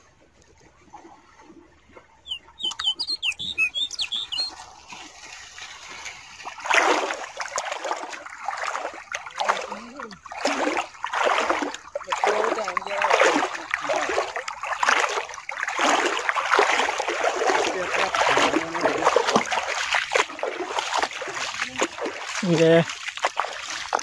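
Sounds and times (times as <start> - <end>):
water splashing: 0.0 - 24.0
small bird chirping: 2.2 - 4.6.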